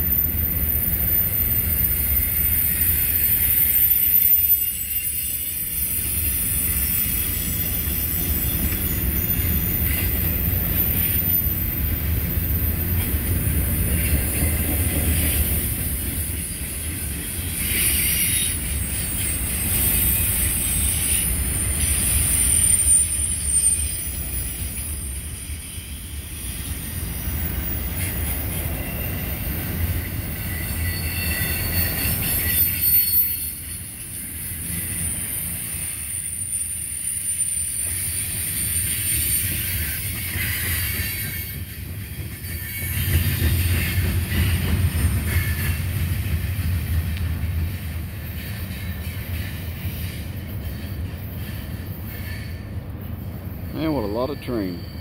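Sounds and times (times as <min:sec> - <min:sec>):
high-pitched wheel squeal: 0:00.0 - 0:13.2, 0:17.6 - 0:26.7, 0:27.4 - 0:41.7
train wheels rumbling on rail: 0:00.0 - 0:55.0.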